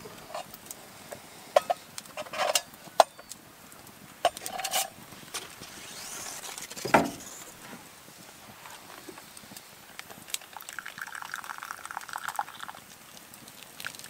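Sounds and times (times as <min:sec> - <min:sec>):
metal pot and lid clanking: 0:01.6 - 0:03.2, 0:04.3 - 0:05.0.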